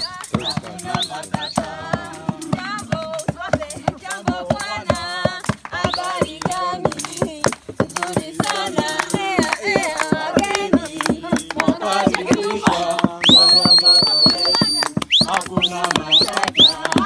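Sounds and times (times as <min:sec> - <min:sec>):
group of voices singing: 0:00.0 - 0:17.0
clapping in time: 0:04.9 - 0:17.0.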